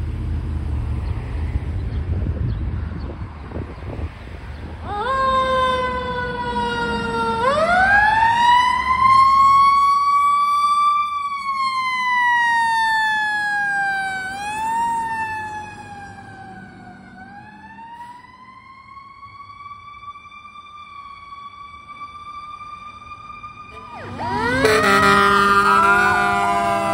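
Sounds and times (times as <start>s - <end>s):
low vehicle rumble: 0.0s - 20.6s
fire truck siren wailing: 4.8s - 26.9s.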